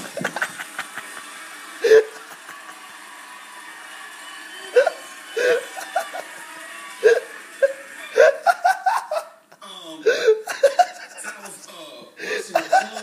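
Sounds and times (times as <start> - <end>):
person laughing: 1.8 - 2.8, 10.1 - 11.5.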